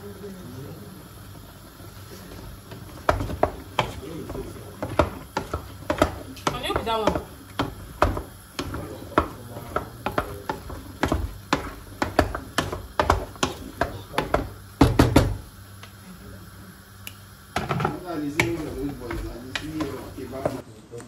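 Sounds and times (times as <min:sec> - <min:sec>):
sharp knocks and taps: 0:03.0 - 0:15.4, 0:18.4 - 0:20.6.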